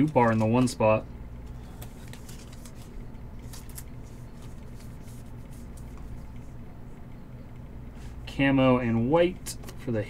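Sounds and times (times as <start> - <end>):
trading cards rustling and clicking: 0.0 - 0.8, 1.4 - 6.5
low hum: 0.1 - 10.0.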